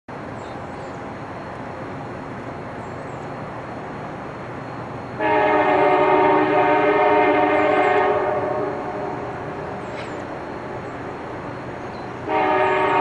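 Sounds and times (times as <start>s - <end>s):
train horn chord: 5.2s - 9.6s, 12.2s - 13.0s.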